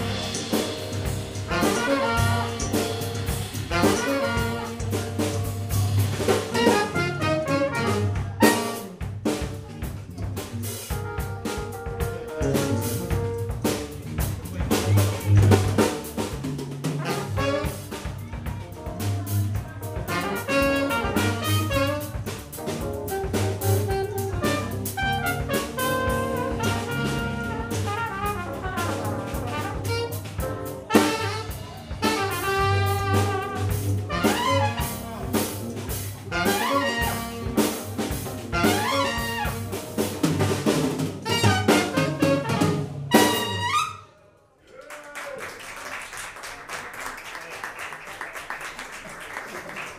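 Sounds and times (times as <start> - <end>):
electric bass guitar: 0.0 - 8.5, 9.3 - 17.7, 18.3 - 42.7
trumpet: 0.0 - 9.2, 16.9 - 18.1, 19.9 - 44.2
drum kit: 0.0 - 44.0
tenor saxophone: 1.4 - 5.4, 6.5 - 9.0, 20.1 - 22.3, 23.0 - 39.8.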